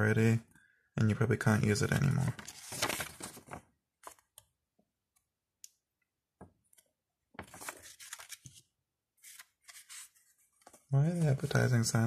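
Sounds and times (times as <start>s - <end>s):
paper rustling: 2.0s - 4.4s, 7.4s - 11.9s.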